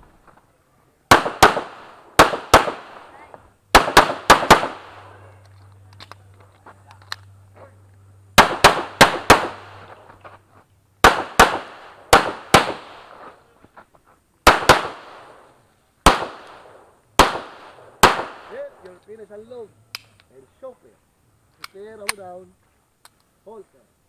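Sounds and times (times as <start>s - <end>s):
pistol shots: 1.1s - 3.1s, 3.7s - 5.2s, 8.4s - 10.0s, 11.0s - 13.3s, 14.4s - 15.4s, 16.0s - 18.9s.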